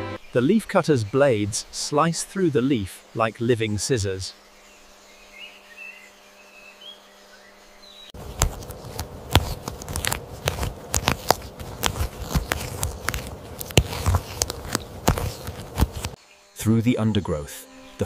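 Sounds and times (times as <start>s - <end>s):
caterpillars chewing leaves: 8.2s - 16.2s.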